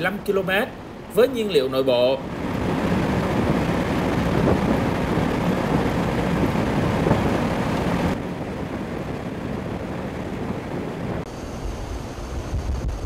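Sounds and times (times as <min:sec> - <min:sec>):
aircraft rumble in flight: 0:02.2 - 0:13.0.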